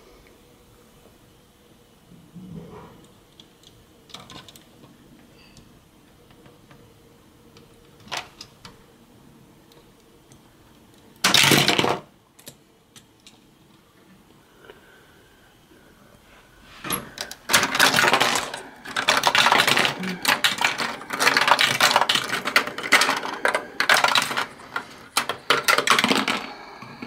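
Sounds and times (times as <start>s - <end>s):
plastic toy pieces clattering: 8.0s - 8.5s, 11.2s - 12.1s, 16.9s - 26.6s
plastic toy bricks clicking: 17.2s - 26.5s.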